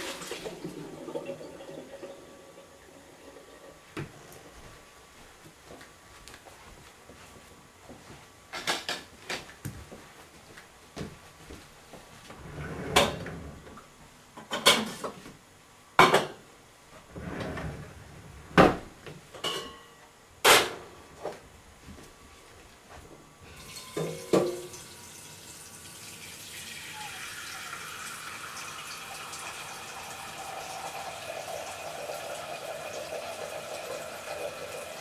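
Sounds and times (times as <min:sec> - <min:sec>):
drawer sliding open and shut: 0:12.3 - 0:13.7, 0:17.1 - 0:18.9
metal pots clanking: 0:19.4 - 0:19.9, 0:23.5 - 0:24.8.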